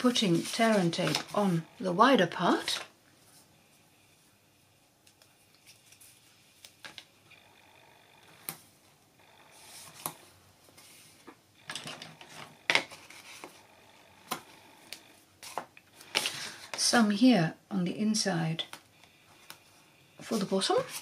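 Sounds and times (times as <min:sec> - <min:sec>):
paper and tape rustling: 0:00.0 - 0:01.6, 0:05.1 - 0:07.0.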